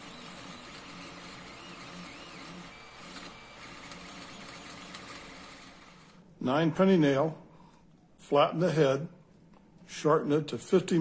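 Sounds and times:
stepper motors whining: 0.0 - 5.9
printer whirring: 0.0 - 6.3.

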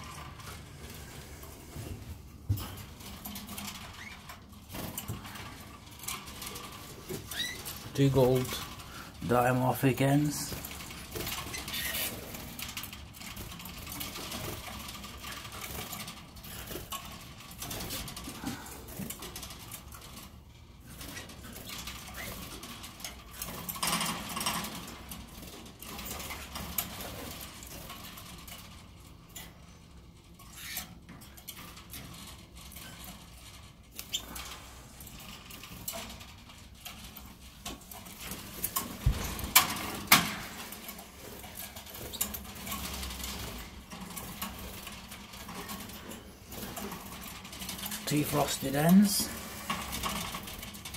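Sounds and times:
wings fluttering: 0.0 - 20.1, 20.9 - 27.9.

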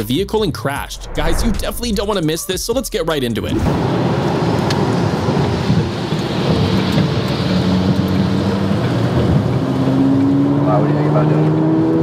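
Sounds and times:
car engine hum: 3.7 - 12.0
rain and wet tyre noise: 3.7 - 12.0.

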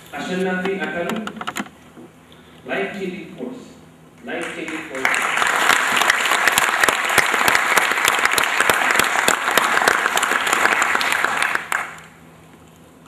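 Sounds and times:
audience applause: 4.4 - 12.2.

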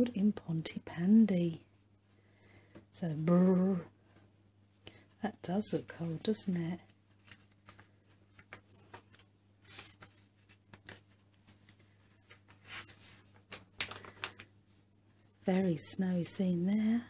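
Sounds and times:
low steady hum: 0.0 - 17.0
magazine page turning: 6.9 - 14.5.

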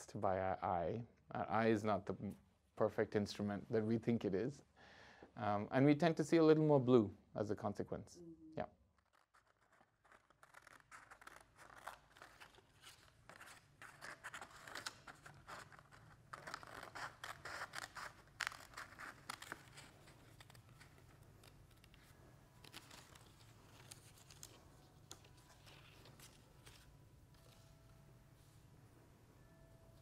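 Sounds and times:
faint low room hum: 0.0 - 30.0
scissors cutting paper: 9.0 - 27.6.

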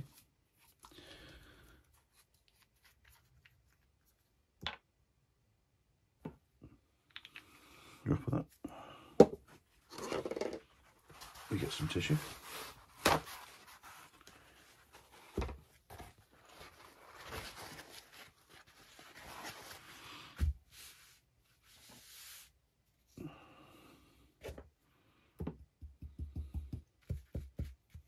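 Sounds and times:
paper towel rustling: 10.8 - 22.6
objects set down on a mat: 15.2 - 16.1.

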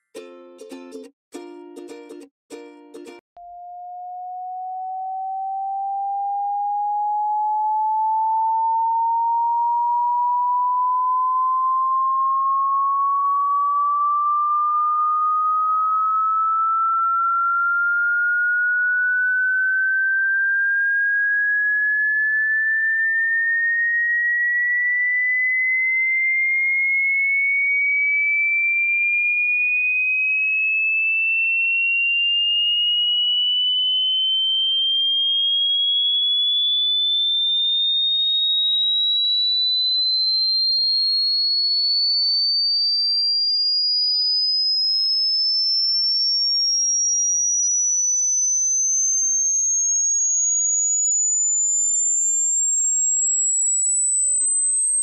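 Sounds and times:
electronic tone gliding upward: 3.4 - 24.4, 32.9 - 36.9.

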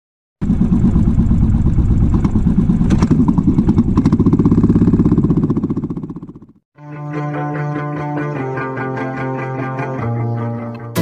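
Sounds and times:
motorcycle engine thumping: 0.4 - 6.6.

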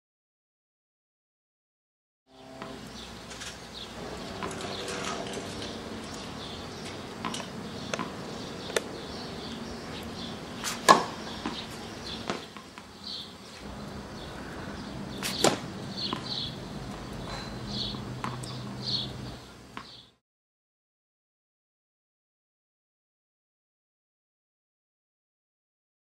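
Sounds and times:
tennis racket hitting ball: 4.0 - 9.5, 10.6 - 12.9, 14.7 - 16.6, 18.2 - 18.5
ball bouncing on hard court: 6.9 - 8.9, 10.6 - 12.9, 15.2 - 17.0, 18.2 - 18.5.

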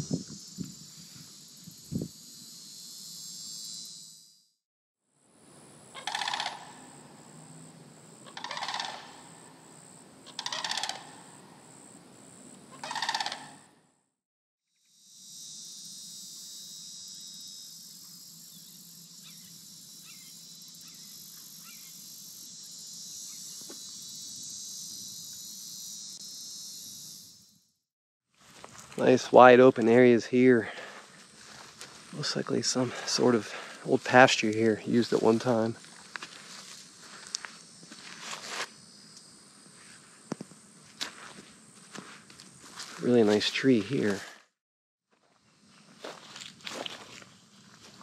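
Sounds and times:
insects droning: 0.0 - 13.8, 14.8 - 27.7, 28.4 - 44.4, 45.2 - 48.0
insect chorus: 0.0 - 13.9, 14.8 - 27.7, 28.4 - 44.4, 45.2 - 48.0
crane calling: 5.8 - 11.9, 12.6 - 13.8.

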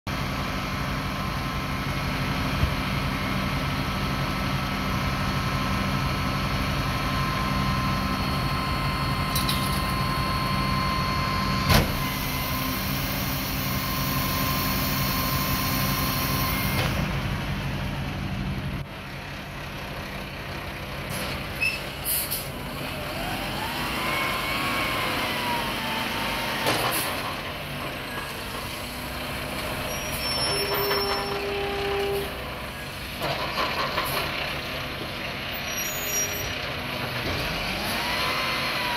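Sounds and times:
diesel engine running: 0.1 - 38.9
whine: 5.5 - 18.7.

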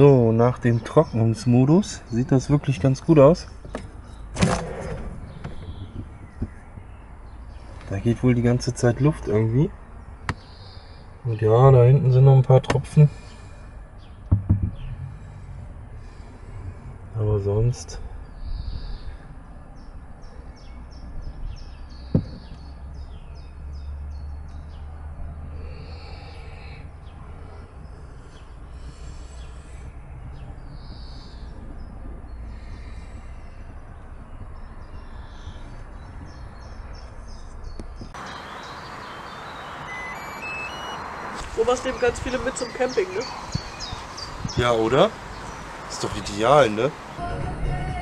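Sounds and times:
open-air noise: 0.0 - 48.0
rising high tones: 38.2 - 43.1.

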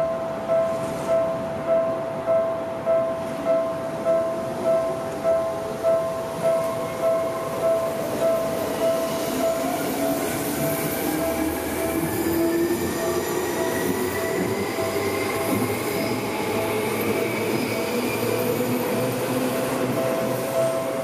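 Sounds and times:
train wheels squealing and rumbling: 6.4 - 21.0.

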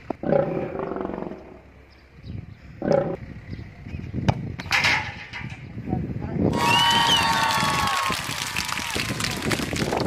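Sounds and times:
football being kicked: 4.2 - 4.7.

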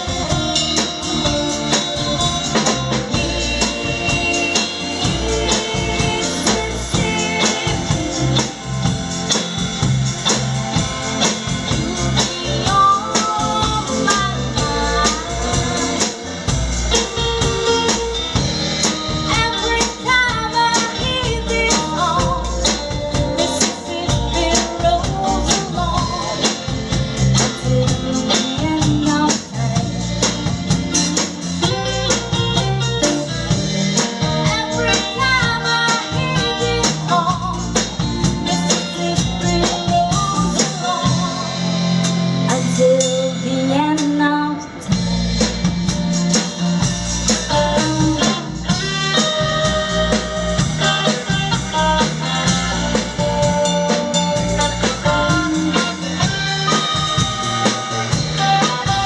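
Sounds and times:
person singing: 0.0 - 9.0, 11.7 - 17.1, 34.3 - 41.8
live band playing: 0.0 - 59.0
congas: 45.4 - 59.0.

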